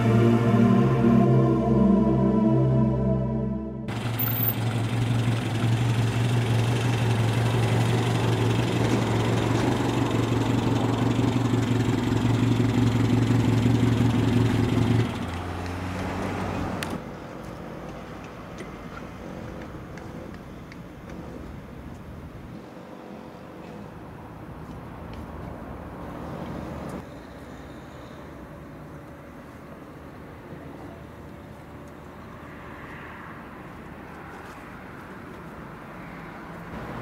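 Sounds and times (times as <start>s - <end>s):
car engine running: 3.9s - 15.4s.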